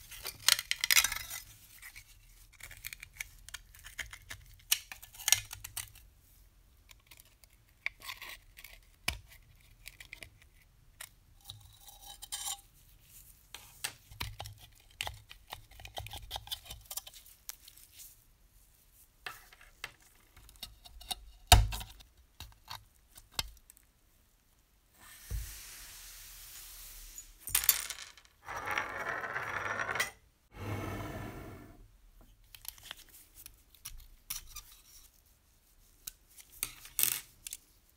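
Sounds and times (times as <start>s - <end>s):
steady hiss: 24.9s - 27.5s.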